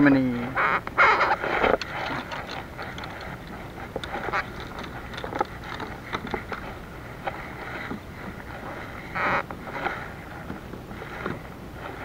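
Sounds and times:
water against kayak hull: 0:01.0 - 0:12.0
fishing gear clicks and knocks: 0:01.2 - 0:08.8.

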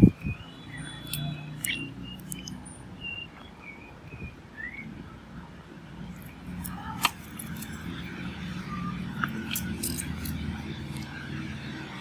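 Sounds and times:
faint bird chirps: 0:00.0 - 0:05.1.

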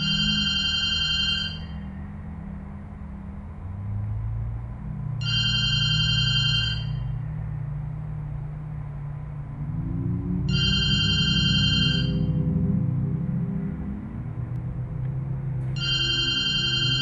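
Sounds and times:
high electronic ringing tone: 0:00.0 - 0:01.9, 0:05.2 - 0:07.2, 0:10.5 - 0:12.4, 0:15.8 - 0:17.0
low drone: 0:00.0 - 0:17.0.

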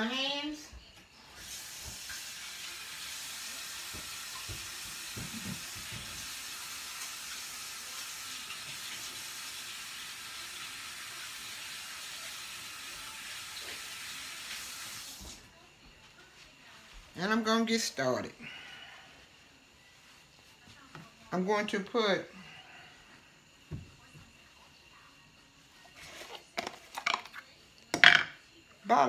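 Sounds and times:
faucet running: 0:01.4 - 0:15.4.

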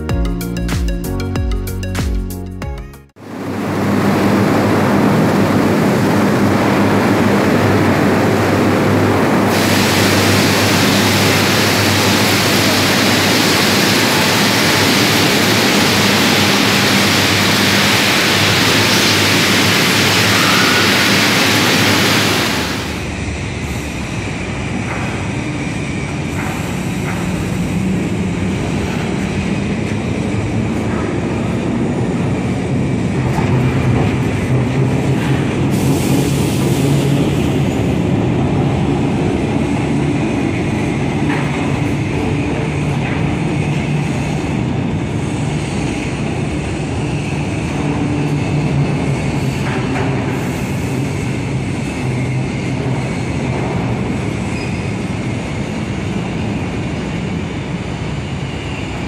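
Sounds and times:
industrial machinery hum: 0:03.2 - 0:59.0
hiss: 0:09.4 - 0:24.1, 0:35.5 - 0:38.0.

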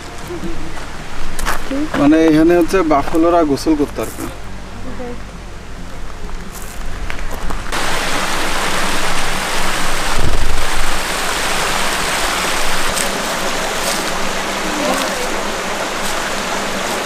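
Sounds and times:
water rushing over rocks: 0:06.3 - 0:17.0.

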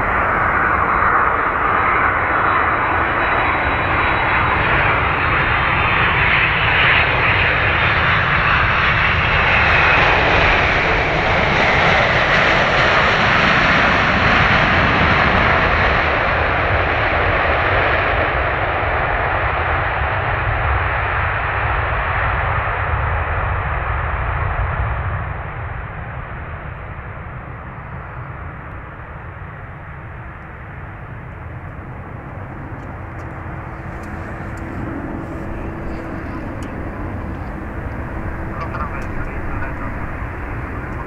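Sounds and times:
jet engines roaring: 0:00.0 - 0:20.0, 0:24.9 - 0:41.0
steady hum: 0:31.1 - 0:41.0.

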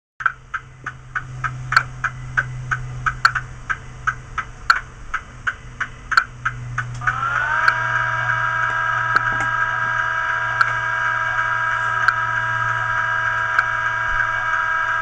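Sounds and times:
diesel engine idling hum: 0:00.2 - 0:15.0
sharp ticking: 0:00.2 - 0:15.0.

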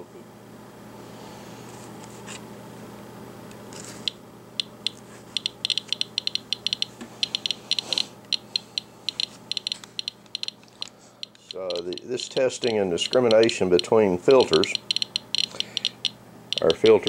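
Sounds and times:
geiger counter clicking: 0:04.0 - 0:10.6, 0:11.2 - 0:17.0.

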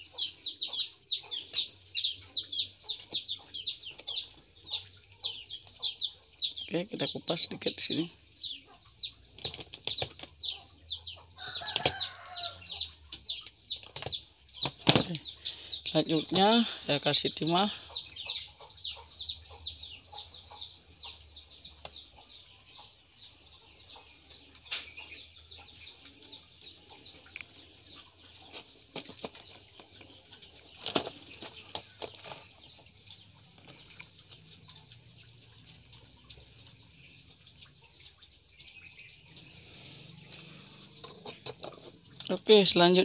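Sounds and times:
small birds chirping: 0:00.0 - 0:43.0.

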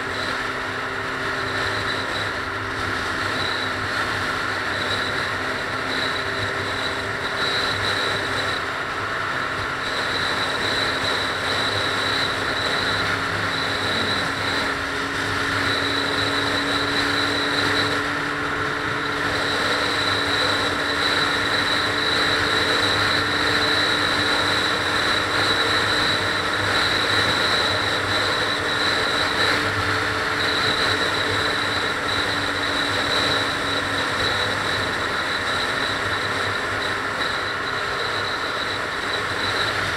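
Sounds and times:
low engine hum: 0:00.0 - 0:39.9
tyre and road rush: 0:00.0 - 0:39.9
faint high-pitched tone: 0:09.8 - 0:19.0.

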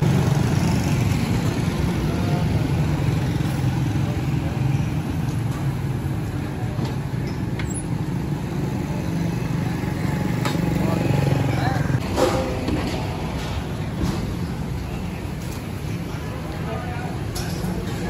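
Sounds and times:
small motorcycle engines running: 0:00.0 - 0:12.0.

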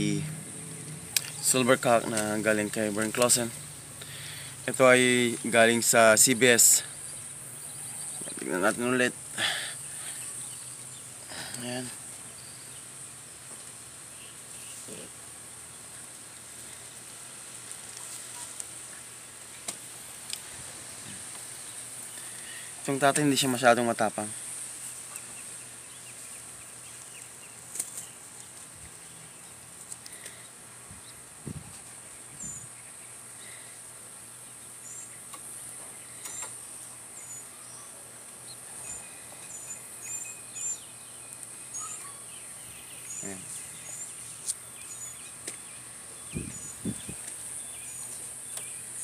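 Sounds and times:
high-pitched hiss: 0:00.0 - 0:12.8
insect chirring: 0:38.4 - 0:49.0.

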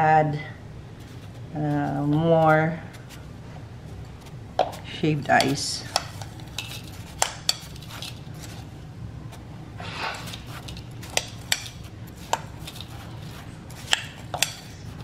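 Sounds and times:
spoon scraping ice: 0:05.3 - 0:08.6, 0:10.0 - 0:15.0
spoon clinking against glass bowl: 0:13.9 - 0:14.7.

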